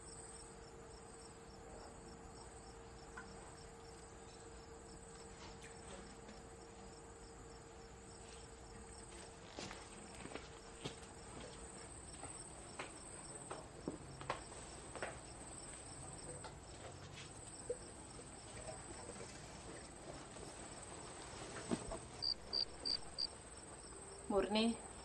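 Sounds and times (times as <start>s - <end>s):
insect trilling: 22.2s - 23.4s.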